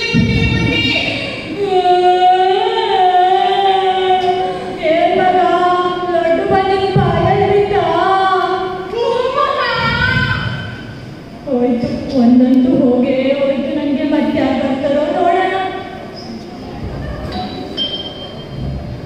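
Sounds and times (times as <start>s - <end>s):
person singing into microphone: 0.0s - 10.7s.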